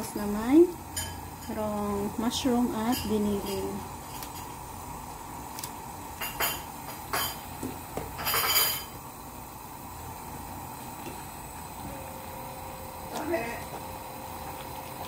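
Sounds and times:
broth simmering: 0:00.0 - 0:15.0.

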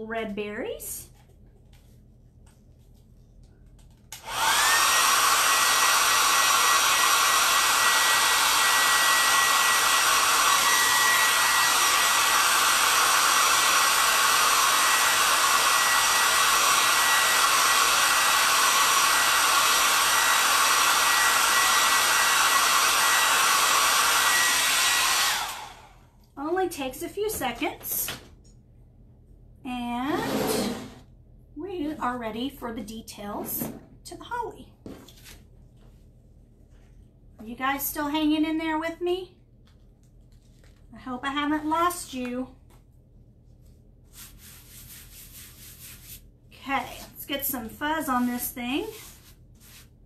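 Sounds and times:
hair dryer blowing with high whine: 0:04.1 - 0:26.1, 0:30.1 - 0:31.0.

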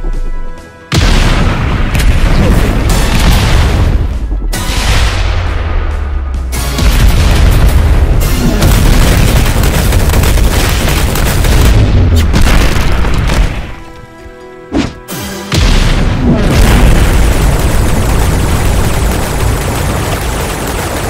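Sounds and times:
background music: 0:00.0 - 0:18.6
booming punch impacts: 0:00.9 - 0:05.9, 0:06.6 - 0:09.6, 0:14.7 - 0:17.4.

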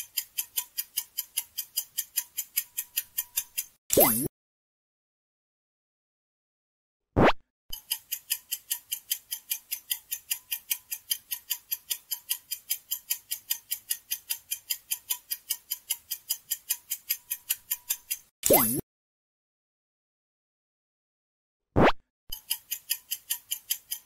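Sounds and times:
countdown timer clock ticking: 0:00.0 - 0:04.3, 0:07.8 - 0:18.8, 0:22.3 - 0:24.0.

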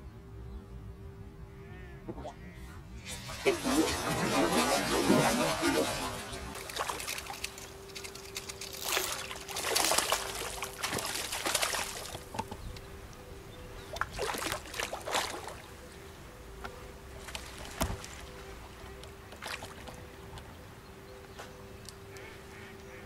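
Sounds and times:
faint steady hum: 0:00.0 - 0:23.0
water splashing: 0:03.0 - 0:12.8, 0:13.8 - 0:15.8, 0:17.0 - 0:20.5.

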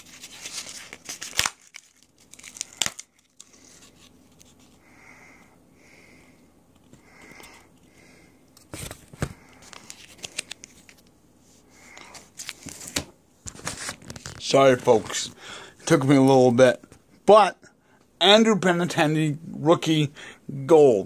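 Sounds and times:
packaging crinkling: 0:00.0 - 0:04.8, 0:12.1 - 0:15.2.

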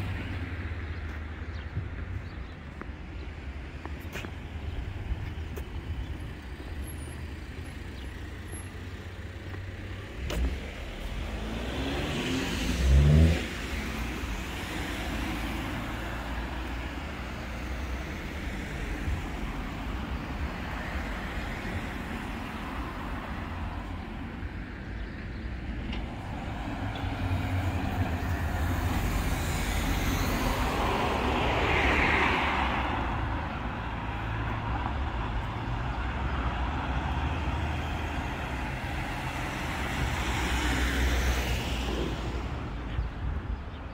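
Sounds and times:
road traffic rumble: 0:00.0 - 0:43.9
vehicle passing by close: 0:10.0 - 0:17.7.

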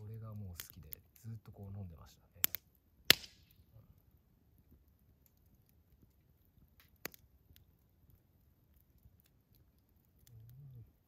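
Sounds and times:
campfire crackling: 0:00.0 - 0:11.0
sharp fire pop: 0:02.4 - 0:03.6.

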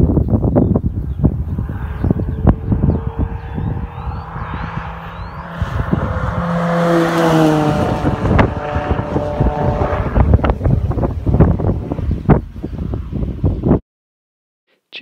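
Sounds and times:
wind buffeting microphone: 0:00.0 - 0:13.8
car engine driving past: 0:01.6 - 0:10.6.

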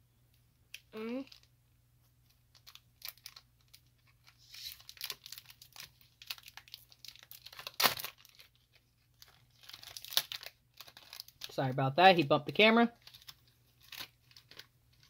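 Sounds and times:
foil wrapper crinkling and tearing: 0:02.3 - 0:11.9, 0:12.9 - 0:15.0.

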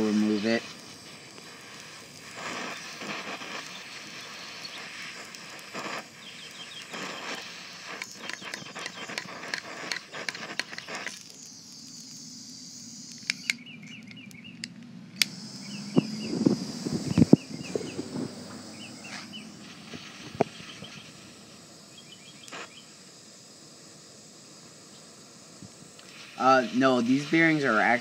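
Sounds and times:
torch flame hissing: 0:00.0 - 0:28.0
short bird chirps: 0:06.2 - 0:07.4, 0:08.1 - 0:09.3, 0:10.7 - 0:14.6, 0:17.0 - 0:21.2, 0:21.9 - 0:23.0.

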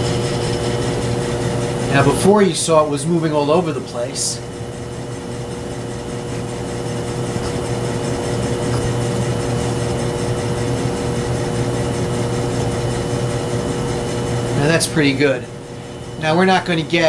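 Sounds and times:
lathe motor hum: 0:00.0 - 0:17.0.

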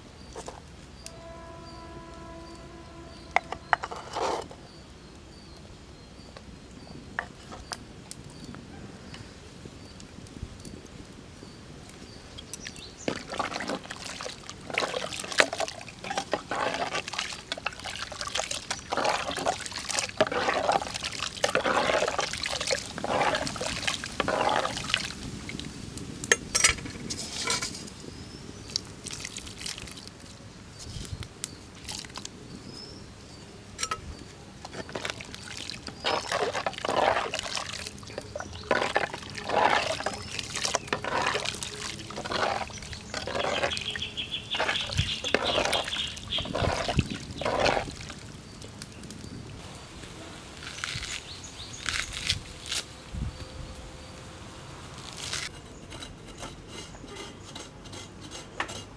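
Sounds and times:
thick liquid sloshing: 0:12.7 - 0:25.7, 0:28.7 - 0:30.3, 0:34.6 - 0:48.6.

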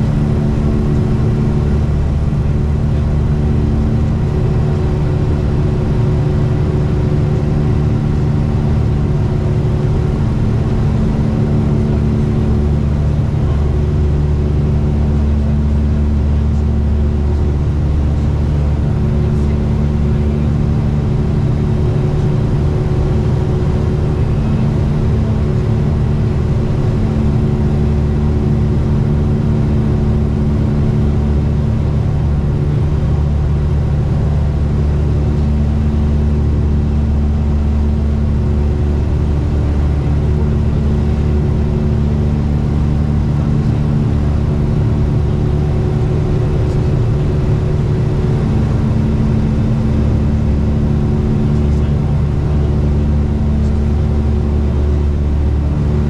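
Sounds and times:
aircraft engines and propellers droning: 0:00.0 - 0:56.0.

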